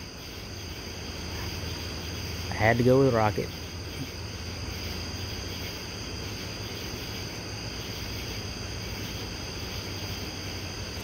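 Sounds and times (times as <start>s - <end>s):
constant low hum: 0.0s - 11.0s
insects chirring: 0.0s - 11.0s.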